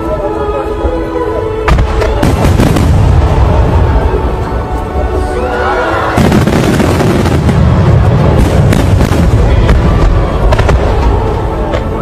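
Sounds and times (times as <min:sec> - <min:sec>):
fireworks bangs and crackles: 0:01.6 - 0:04.8, 0:05.9 - 0:12.0.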